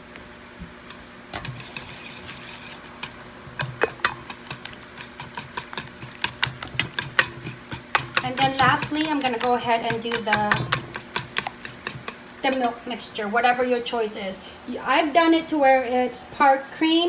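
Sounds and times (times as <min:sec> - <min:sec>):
whisk clicking and scraping metal bowl: 0:01.3 - 0:12.6.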